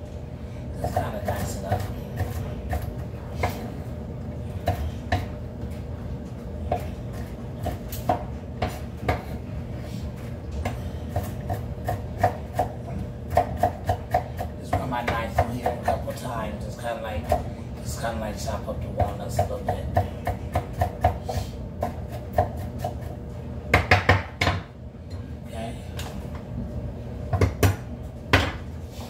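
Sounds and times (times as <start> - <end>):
knife chopping on wooden board: 6.7 - 9.4, 10.6 - 16.0, 19.0 - 24.7, 27.3 - 28.6.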